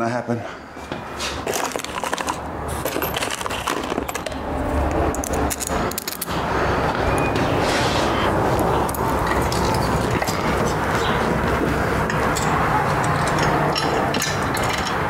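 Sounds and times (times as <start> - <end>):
metal tools clinking and rattling: 1.4 - 6.4, 8.8 - 15.0
steady loud noise: 2.3 - 15.0.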